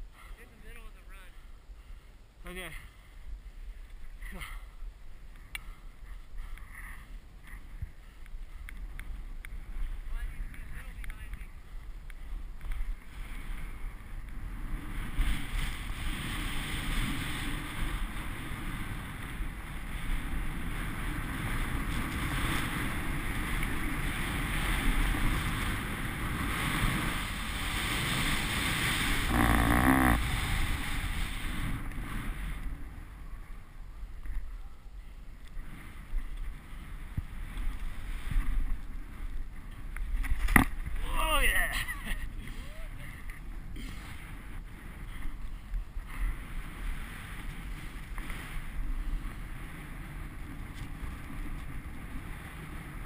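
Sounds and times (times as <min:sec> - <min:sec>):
wind on microphone: 0:03.2 - 0:53.0
skis sliding on snow: 0:12.9 - 0:33.5, 0:35.6 - 0:40.4, 0:44.0 - 0:53.0.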